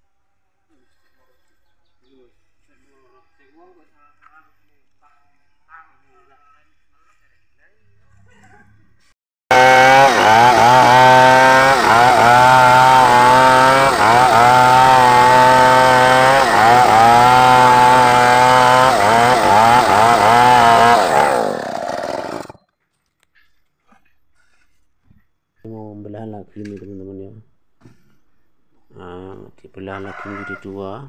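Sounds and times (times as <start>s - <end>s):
chainsaw cutting wood: 9.5s - 22.6s.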